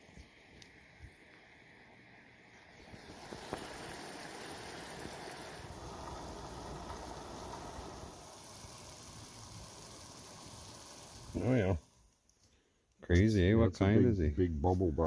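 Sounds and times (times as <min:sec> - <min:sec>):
food sizzling in a pan: 0:02.8 - 0:12.2.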